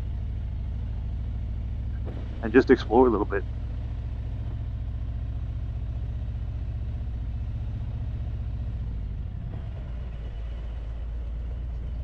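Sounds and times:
motorcycle engine rumbling: 0:00.0 - 0:12.0.

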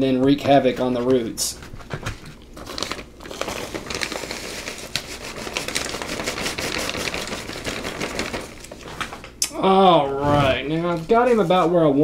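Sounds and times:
plastic bag crinkling: 0:02.1 - 0:09.4.

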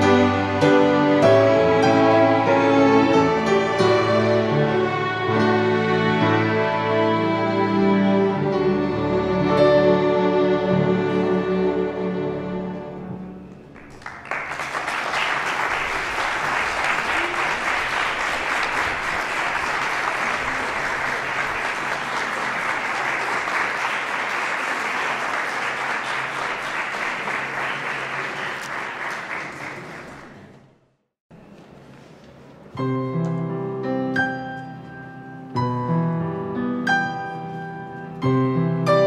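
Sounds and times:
string orchestra chord: 0:00.0 - 0:13.5
audience applauding: 0:13.5 - 0:30.7.

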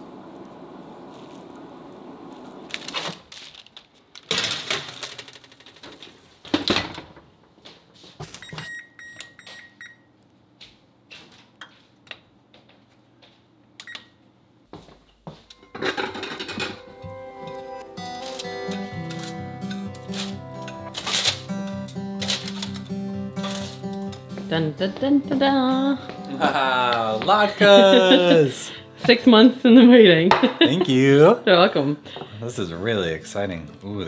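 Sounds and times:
metal pans clattering: 0:15.6 - 0:16.9.

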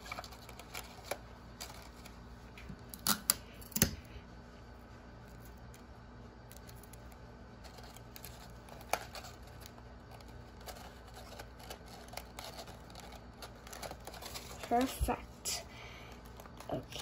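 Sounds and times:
paper rustling: 0:00.0 - 0:02.6, 0:06.5 - 0:15.3.

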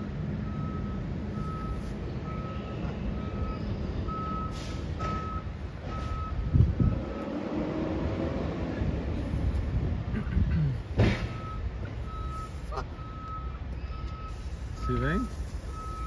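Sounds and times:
low engine rumble: 0:00.0 - 0:16.0
reversing alarm beeping: 0:00.4 - 0:07.4, 0:11.3 - 0:16.0
heavy thump: 0:10.9 - 0:11.5.

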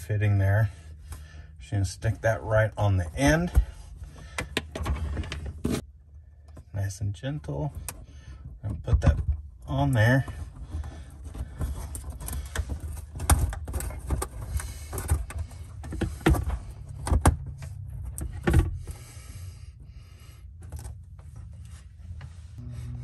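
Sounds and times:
plastic fitting clicking and creaking: 0:04.2 - 0:05.8.

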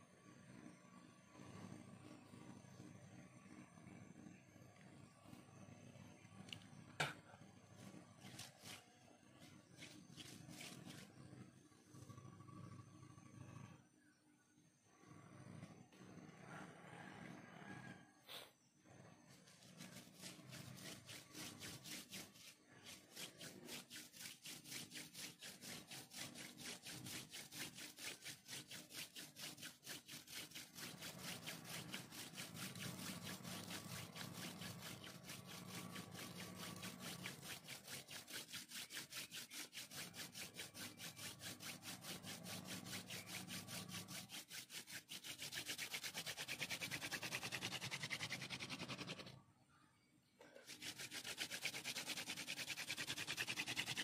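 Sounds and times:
wooden spindle rasping on wood: 0:08.2 - 0:11.2, 0:19.4 - 0:49.4, 0:50.5 - 0:54.0.

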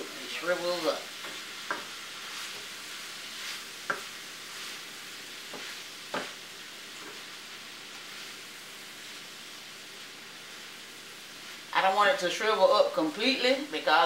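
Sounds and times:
food sizzling in a skillet: 0:00.0 - 0:14.0
spatula knocking against pan: 0:01.2 - 0:01.9.

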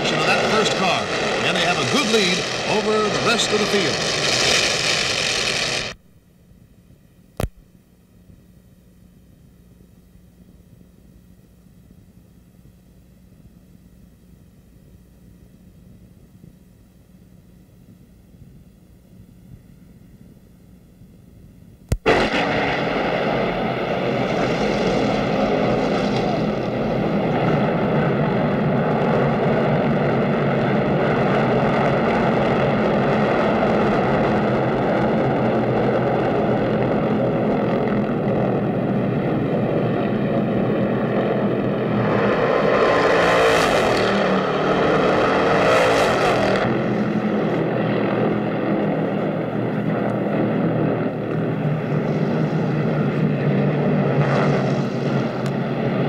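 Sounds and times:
racing car engines at full speed: 0:00.0 - 0:06.0, 0:22.2 - 0:56.0.

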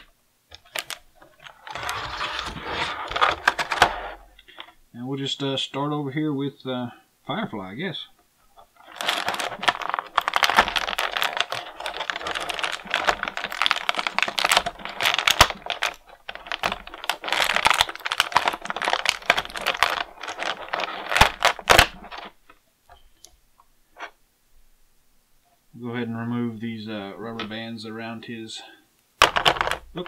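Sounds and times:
plastic packaging crackling: 0:00.0 - 0:04.7, 0:08.5 - 0:22.6, 0:29.2 - 0:30.0.

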